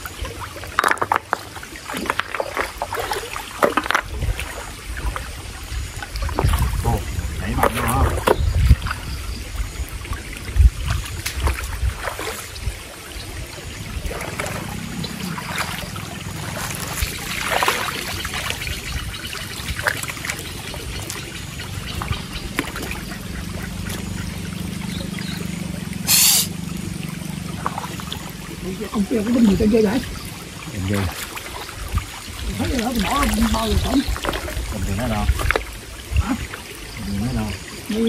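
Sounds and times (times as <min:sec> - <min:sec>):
stream water trickling over stones: 0:00.0 - 0:38.0
stones knocking and splashing: 0:00.6 - 0:04.7, 0:06.2 - 0:09.0, 0:32.6 - 0:35.7
short sharp burst: 0:26.0 - 0:26.6.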